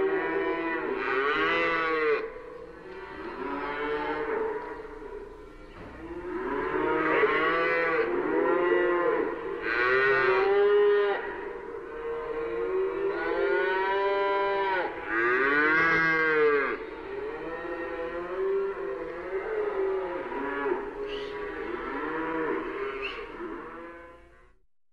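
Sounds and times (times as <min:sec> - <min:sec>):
cattle mooing: 0:00.0 - 0:02.3, 0:05.8 - 0:24.5.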